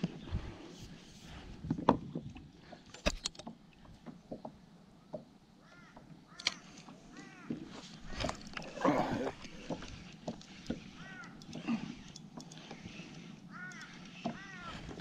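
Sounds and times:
harsh crow-like bird calls: 5.6s - 7.8s, 10.8s - 12.0s, 13.5s - 15.0s
fishing gear clicking: 7.8s - 15.0s.

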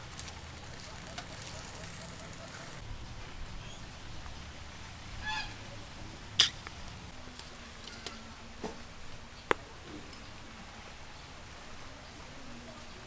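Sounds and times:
bird call: 5.2s - 5.6s.

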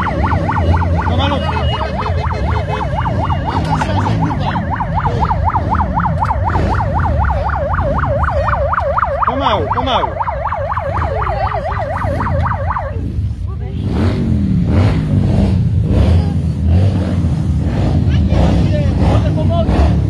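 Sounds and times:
emergency siren yelping: 0.0s - 13.3s.

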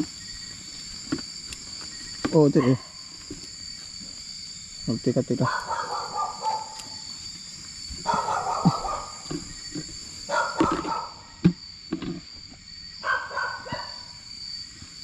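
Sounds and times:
night insects droning: 0.0s - 15.0s
animal calls: 5.4s - 7.1s, 8.0s - 11.4s.

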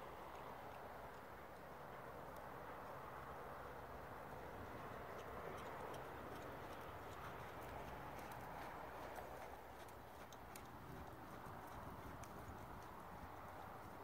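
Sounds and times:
horse hoofbeats on sand: 4.4s - 14.0s.

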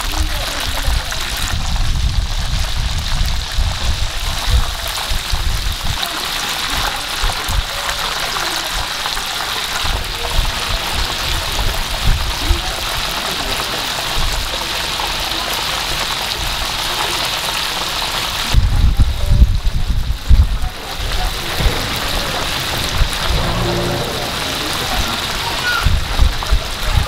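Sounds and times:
shrimp deep-frying in oil: 0.0s - 27.0s.

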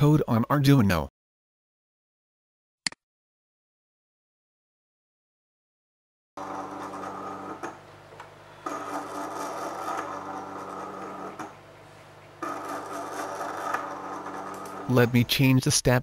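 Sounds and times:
quiet motor hum: 6.4s - 15.7s.

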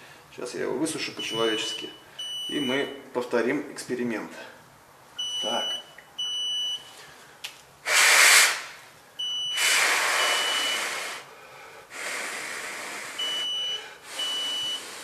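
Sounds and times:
short high alarm beeps: 1.2s - 3.0s, 5.2s - 6.9s, 9.2s - 11.0s, 13.2s - 14.9s
person blowing hard: 7.8s - 8.8s, 9.5s - 11.3s, 11.9s - 15.0s.

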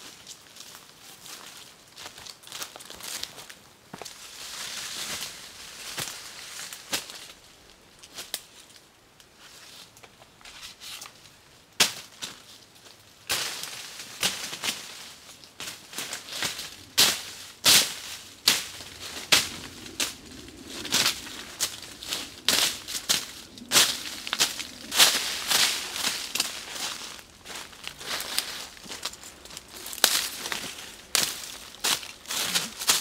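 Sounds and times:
leaves crunching underfoot: 11.9s - 33.0s
twigs snapping: 15.4s - 33.0s.

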